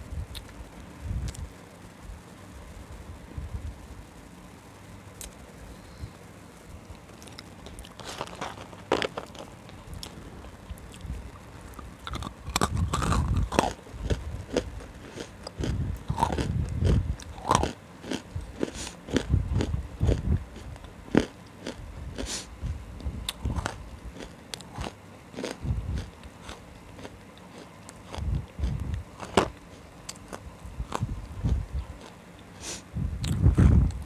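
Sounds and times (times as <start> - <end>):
low chewing: 6.9 - 34.0
crunching of dry chunks: 7.0 - 22.5, 23.3 - 33.7.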